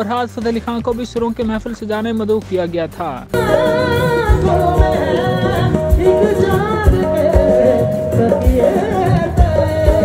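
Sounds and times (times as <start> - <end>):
band playing: 0.0 - 10.0
drum hits: 3.3 - 10.0.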